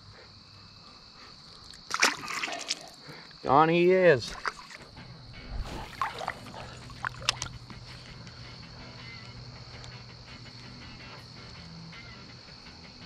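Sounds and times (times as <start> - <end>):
river water splashing: 1.8 - 3.0, 4.3 - 7.6
flowing water: 1.9 - 3.0, 5.6 - 7.6.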